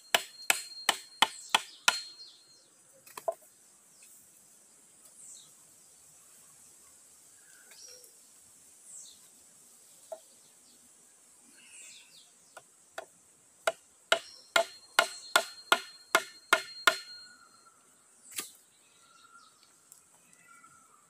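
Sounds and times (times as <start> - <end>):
knocking on hollow bamboo: 0.1 - 2.1, 12.6 - 17.2.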